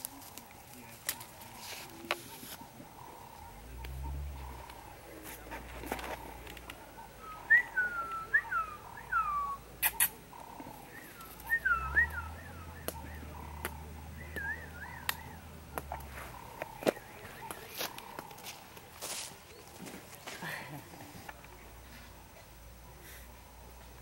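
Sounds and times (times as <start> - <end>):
whistled notes sliding down: 11.0 - 13.2.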